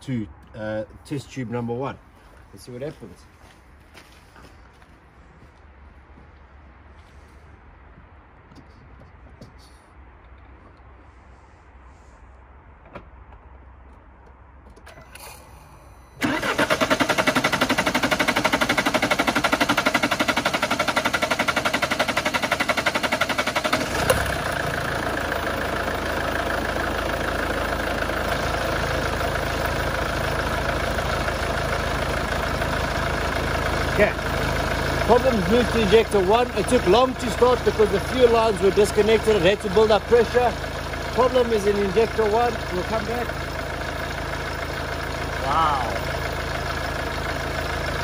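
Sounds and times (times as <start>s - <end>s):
diesel engine cranking: 14.7s - 48.0s
diesel engine idling: 14.8s - 48.0s.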